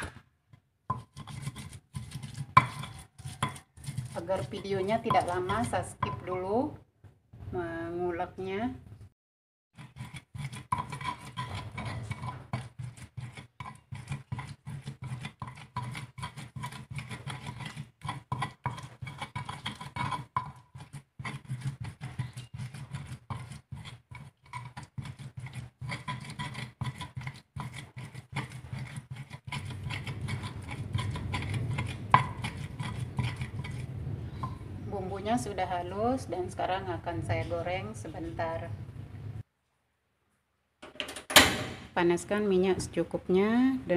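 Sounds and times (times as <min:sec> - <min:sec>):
stone pestle grinding in mortar: 0:00.9 - 0:06.4, 0:09.8 - 0:35.0.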